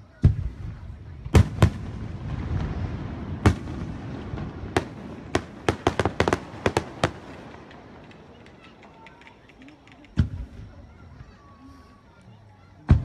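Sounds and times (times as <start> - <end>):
firework booms: 0.1 - 8.4, 10.2 - 11.4
firework cracks: 0.2 - 11.5.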